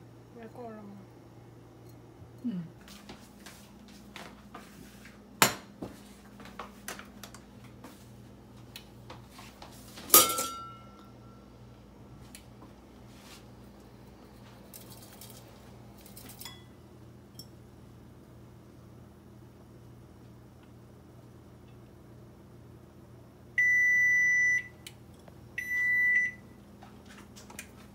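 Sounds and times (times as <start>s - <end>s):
pots and ladle clanking: 10.1s - 11.0s
ringing metal clang: 10.1s - 11.4s.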